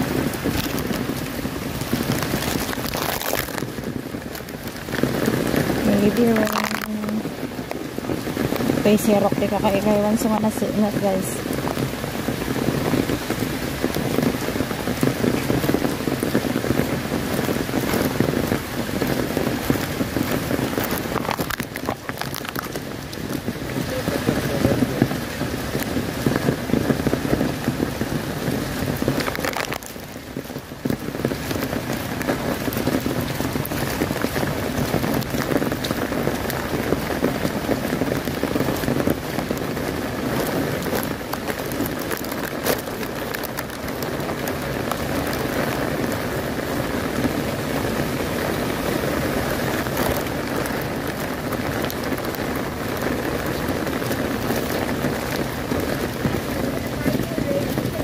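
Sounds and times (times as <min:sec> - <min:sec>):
heavy rain on an umbrella: 0:00.0 - 0:58.0.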